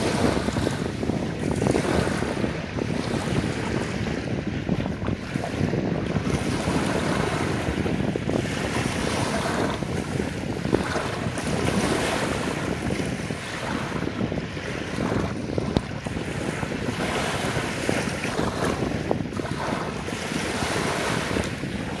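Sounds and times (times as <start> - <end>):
sea waves lapping on shore: 0.0 - 22.0
wind noise on microphone: 0.0 - 22.0.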